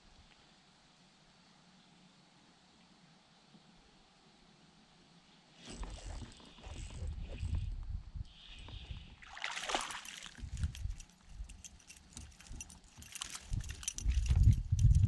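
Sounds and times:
fish splashing at water surface: 0:09.2 - 0:10.7.

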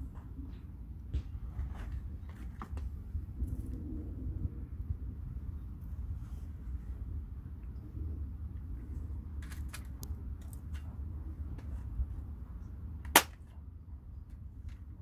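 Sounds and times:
handling clicks and rustles: 0:00.0 - 0:03.7, 0:08.8 - 0:12.2
low steady rumble: 0:00.0 - 0:15.0
staple gun snap: 0:13.1 - 0:13.4.

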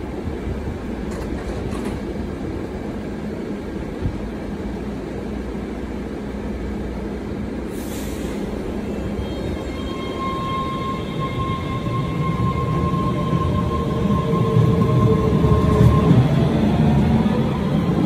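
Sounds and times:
subway train rumbling: 0:00.0 - 0:18.0
short hiss: 0:07.7 - 0:08.6.

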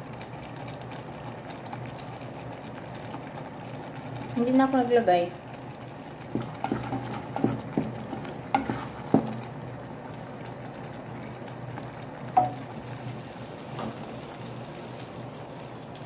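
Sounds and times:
daal bubbling: 0:00.0 - 0:16.0
wooden spoon stirring thick daal: 0:05.3 - 0:09.5
spoon knocking against pot: 0:12.4 - 0:12.6.

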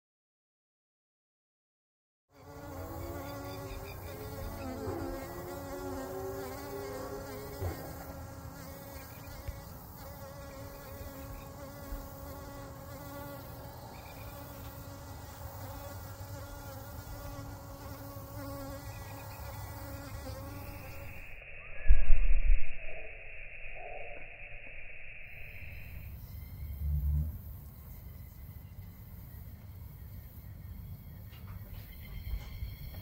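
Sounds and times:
flying insects buzzing: 0:02.3 - 0:21.3.

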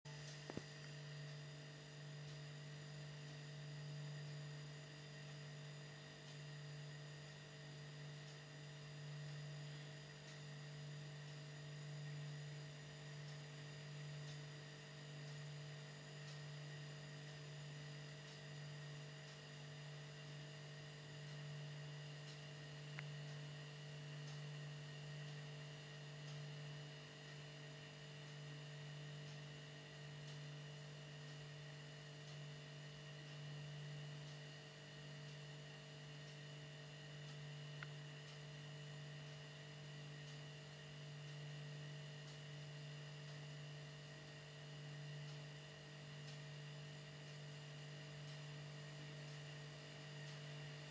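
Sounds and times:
small click: 0:37.3 - 0:38.4.

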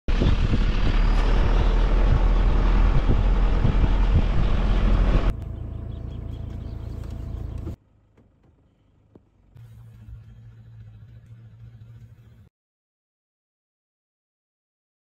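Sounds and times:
vehicle engine and road rumble: 0:00.1 - 0:12.5.

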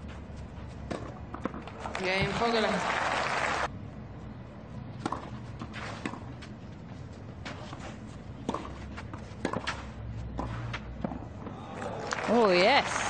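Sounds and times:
low court ambience: 0:00.0 - 0:13.0
tennis balls struck by rackets: 0:00.8 - 0:02.6, 0:05.0 - 0:06.4, 0:08.4 - 0:11.6.

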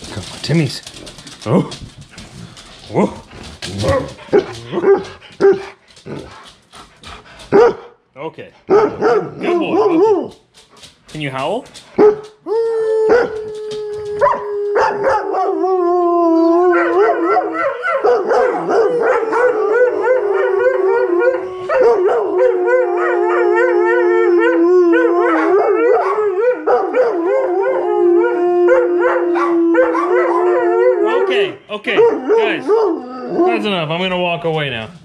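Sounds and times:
dogs yipping: 0:03.8 - 0:06.2, 0:07.5 - 0:07.8, 0:08.7 - 0:10.3, 0:12.0 - 0:12.4, 0:16.8 - 0:22.6, 0:25.2 - 0:27.5, 0:29.0 - 0:31.3
dogs howling: 0:12.0 - 0:33.8.

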